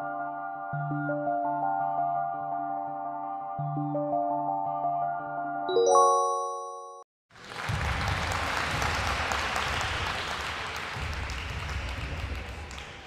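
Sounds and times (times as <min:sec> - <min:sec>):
bright chime: 0:05.7 - 0:07.0
recorded applause: 0:07.3 - 0:13.0.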